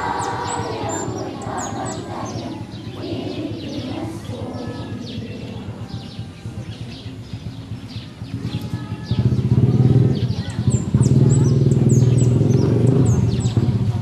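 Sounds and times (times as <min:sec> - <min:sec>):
children singing together: 0:00.0 - 0:06.3
birds chirping: 0:00.0 - 0:14.0
steady low rumble: 0:00.0 - 0:14.0.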